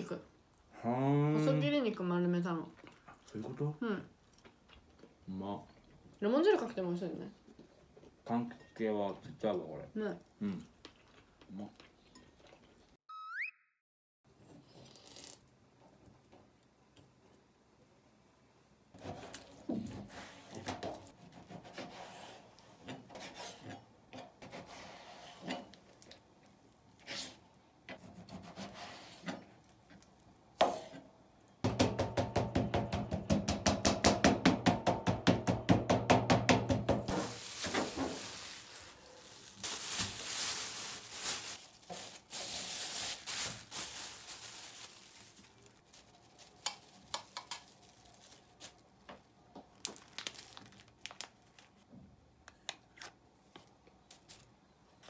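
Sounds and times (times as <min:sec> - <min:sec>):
hissing rustling: 0:37.1 - 0:45.7.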